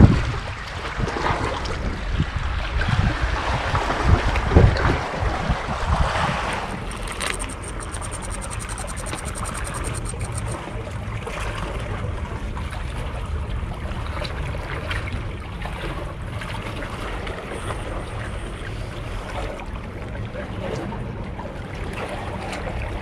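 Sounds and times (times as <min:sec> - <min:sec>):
fishing reel ticking rapidly: 0:06.6 - 0:10.6.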